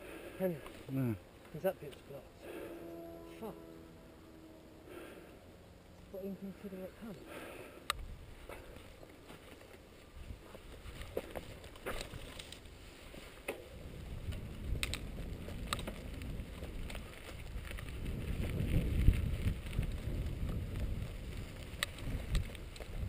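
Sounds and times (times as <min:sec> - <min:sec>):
wind: 0:00.0 - 0:23.0
bike tyres rumbling on dirt: 0:07.4 - 0:23.0
bike clicks and rattles: 0:07.8 - 0:23.0.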